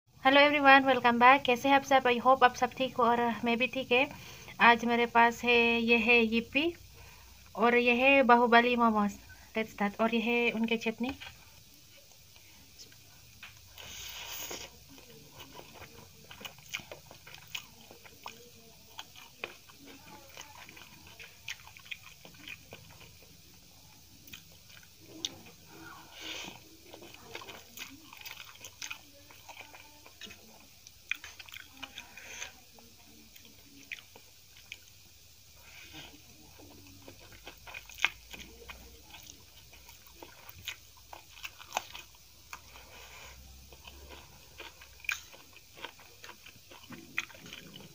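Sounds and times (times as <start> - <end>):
person chewing and slurping: 12.9 - 23.5, 24.2 - 32.6, 35.6 - 47.9.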